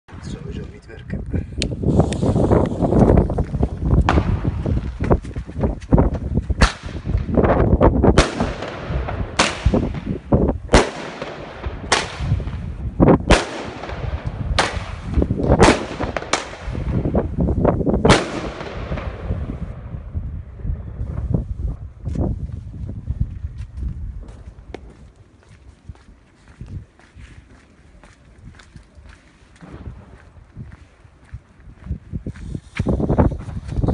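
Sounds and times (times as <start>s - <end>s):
firecracker bangs echoing: 4.0s - 5.0s, 6.6s - 17.3s, 18.0s - 20.0s.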